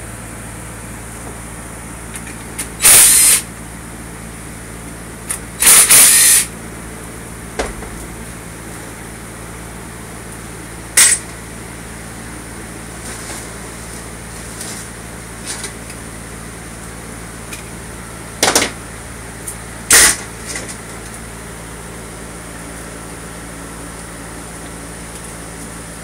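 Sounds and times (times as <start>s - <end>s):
cordless impact driver bursts: 2.8s - 3.5s, 5.6s - 6.5s, 19.9s - 20.2s.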